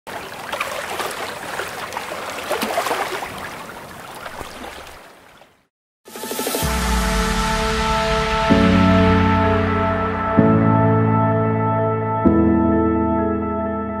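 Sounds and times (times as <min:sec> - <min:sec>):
water sloshing and splashing: 0:00.1 - 0:05.7.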